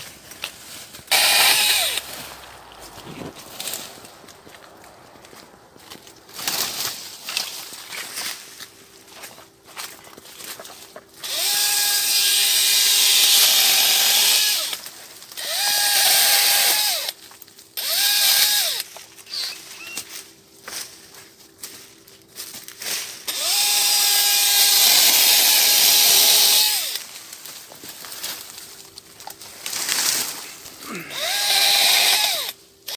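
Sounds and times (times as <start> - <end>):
electric saw motor whine: 1.1 - 6.2, 11.2 - 14.8, 15.4 - 17.2, 17.8 - 20.0, 23.3 - 27.0, 31.1 - 32.6.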